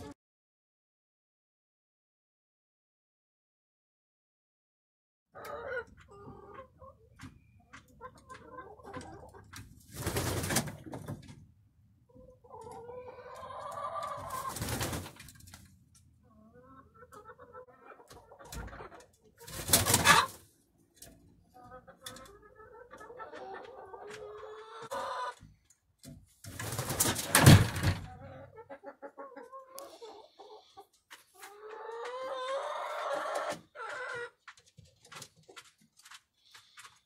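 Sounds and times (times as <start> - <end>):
hens clucking softly: 5.4 - 9.9, 12.0 - 25.7, 28.0 - 37.0
wings flapping: 9.9 - 10.8, 14.3 - 15.4, 19.5 - 20.3, 26.5 - 28.0.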